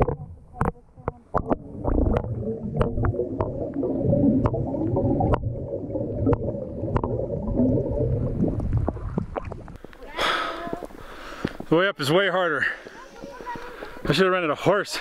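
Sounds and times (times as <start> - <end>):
muffled underwater gurgling: 0.0 - 11.0
bubbles popping and clicking: 0.0 - 11.7.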